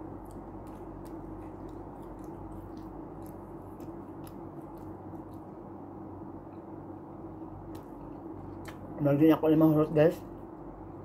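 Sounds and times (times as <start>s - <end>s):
person chewing food: 0.0s - 5.8s
steady low hum: 0.0s - 11.0s.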